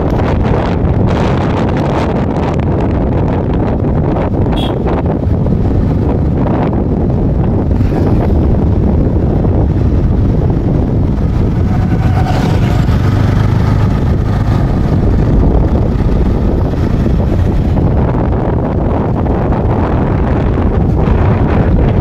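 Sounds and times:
engine hum: 0.0 - 22.0
wind buffeting microphone: 0.0 - 22.0.

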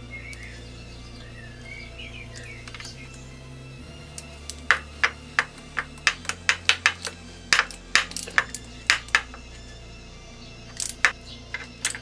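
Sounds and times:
quiet background music: 0.0 - 12.0
socket tool clicking: 4.1 - 9.6, 10.7 - 12.0.

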